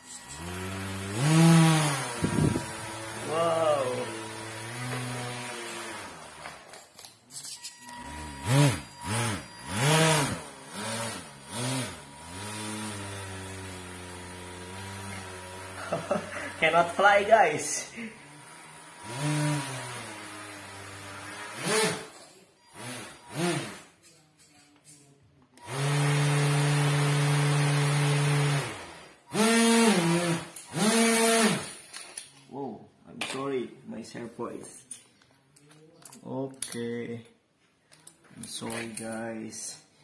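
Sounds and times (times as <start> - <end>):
electric motor propeller whine: 0.1 - 6.6, 7.8 - 17.0, 18.0 - 22.1, 25.6 - 31.7.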